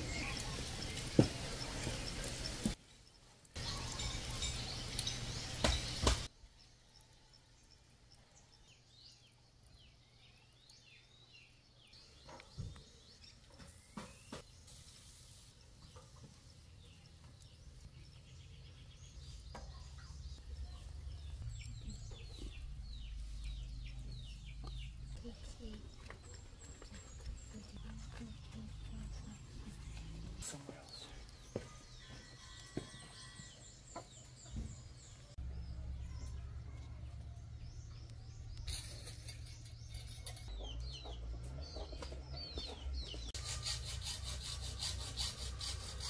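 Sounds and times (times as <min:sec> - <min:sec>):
birds calling: 0:15.7 - 0:46.0.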